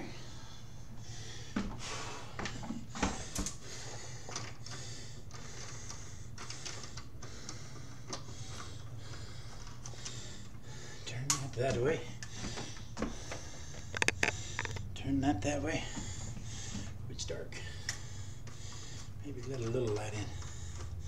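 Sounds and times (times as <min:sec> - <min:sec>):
steady low hum: 0:00.0 - 0:21.0
light clicks and rustles: 0:17.9 - 0:21.0.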